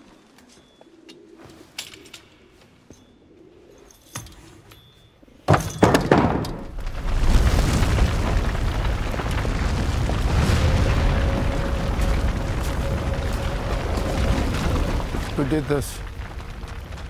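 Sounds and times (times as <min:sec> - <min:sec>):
explosion boom and rumble: 0:06.2 - 0:17.0.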